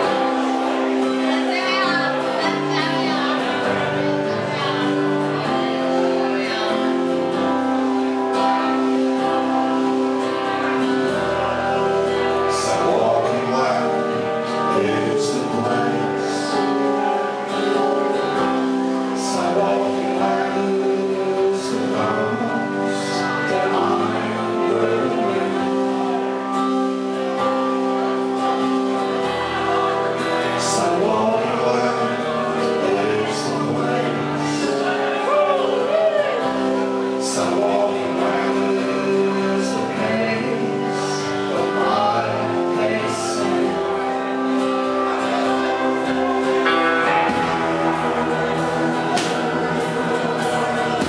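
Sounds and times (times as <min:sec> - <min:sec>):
person singing: 0:00.0 - 0:51.0
strummed acoustic guitar: 0:00.0 - 0:51.0
drum kit: 0:47.1 - 0:51.0.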